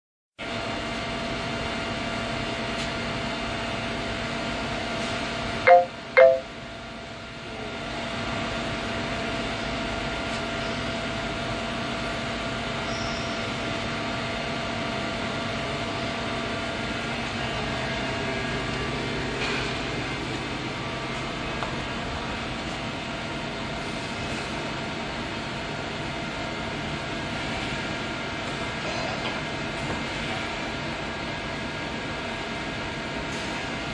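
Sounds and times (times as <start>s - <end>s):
short loud beeps: 5.7s - 6.6s.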